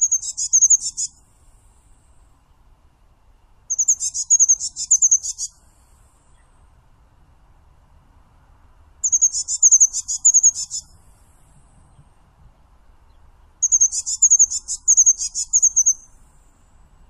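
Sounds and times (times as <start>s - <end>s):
high-pitched bird song: 0.0s - 1.2s, 3.7s - 5.6s, 9.0s - 10.9s, 13.6s - 16.2s.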